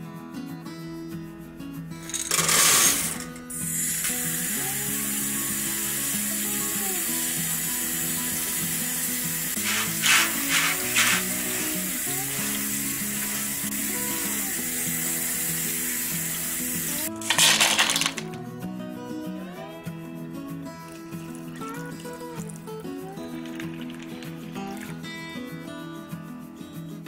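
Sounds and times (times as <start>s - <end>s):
background music: 0.0s - 27.0s
tap water running into strainer: 2.1s - 18.3s, 20.9s - 25.1s.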